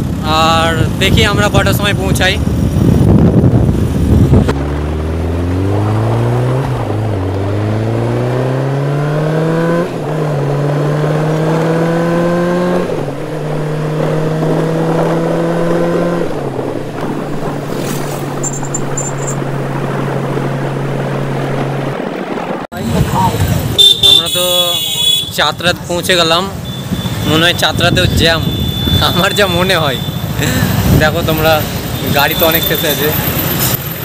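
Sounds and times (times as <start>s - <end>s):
wind buffeting microphone: 0.8s - 8.2s, 12.6s - 23.8s
motorcycle engine accelerating: 2.4s - 22.0s.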